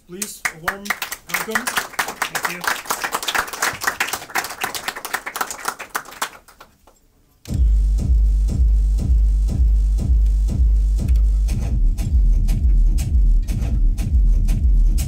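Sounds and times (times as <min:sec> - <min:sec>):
audience applause: 0:00.4 - 0:06.9
deep pulsing synth bass beat: 0:07.5 - 0:15.0.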